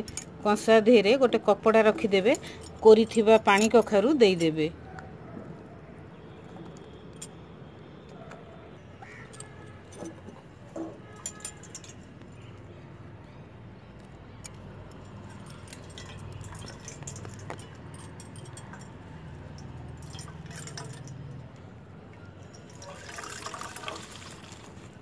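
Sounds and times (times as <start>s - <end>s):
cloth bundle clinking against steel bowl: 15.2s - 21.2s
liquid dripping into bowl: 19.6s - 21.2s.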